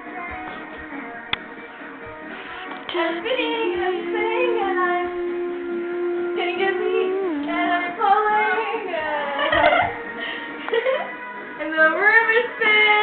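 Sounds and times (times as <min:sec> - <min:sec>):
faint background music: 0:00.0 - 0:13.0
girl singing wordlessly: 0:02.9 - 0:09.5.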